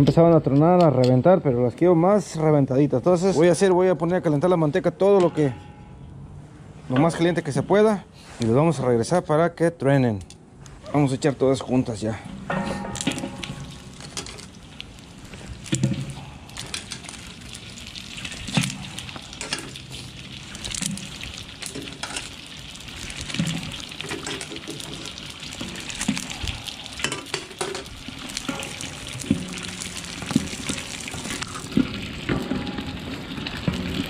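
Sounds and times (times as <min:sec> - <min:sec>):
wooden paddle knocking pot: 0:12.3 - 0:14.3, 0:27.0 - 0:34.0
deep-frying sizzle with pops: 0:12.4 - 0:34.0.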